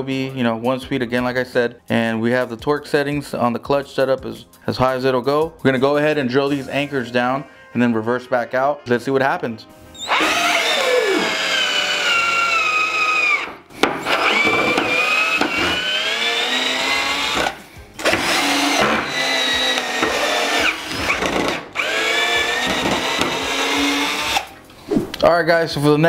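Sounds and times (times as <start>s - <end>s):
cordless drills whining: 9.9s - 24.6s.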